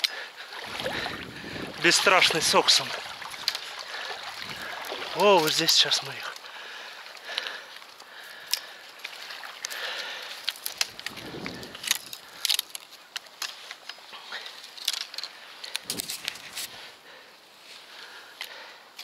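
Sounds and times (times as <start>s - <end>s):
netting and clothing rustling: 0.0s - 19.0s.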